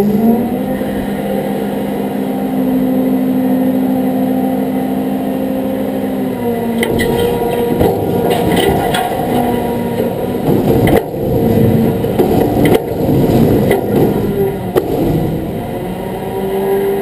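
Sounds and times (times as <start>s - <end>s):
truck engine idling: 5.0s - 16.4s.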